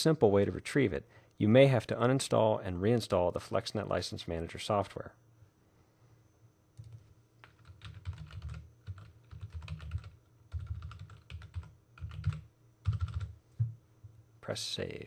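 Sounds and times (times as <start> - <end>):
typing on computer keyboard: 6.8 - 13.3.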